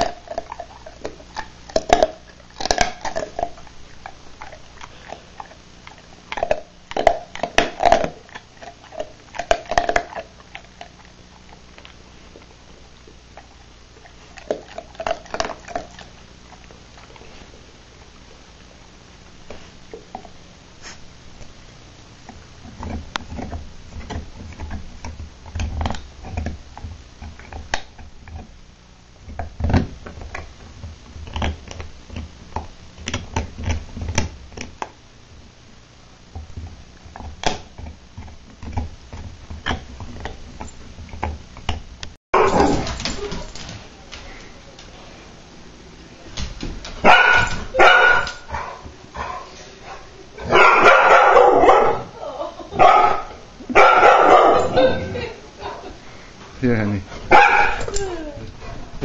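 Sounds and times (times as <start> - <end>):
dog crunching chew stick: 0.0 - 17.3, 22.2 - 28.5.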